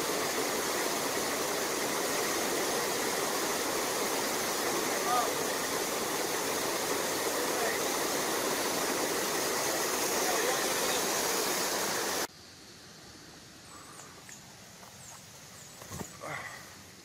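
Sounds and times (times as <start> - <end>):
river water rushing over rocks: 0.0 - 12.3.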